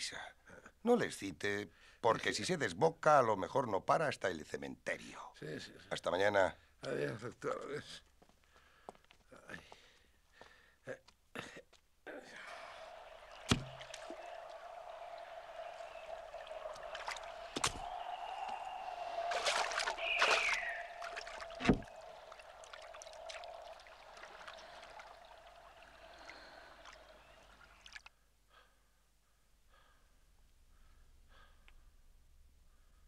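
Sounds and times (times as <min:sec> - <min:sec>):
faint hum: 0:12.1 - 0:28.0
water splashing and lapping: 0:12.1 - 0:28.1.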